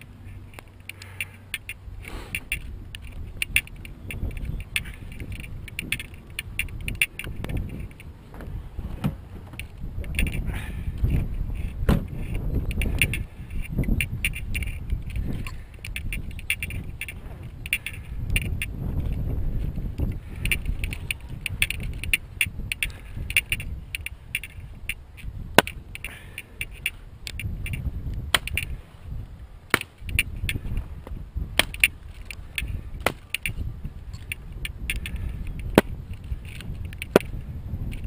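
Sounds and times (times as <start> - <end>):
sharp wooden knocks: 11.8 - 13.2, 33.0 - 33.6.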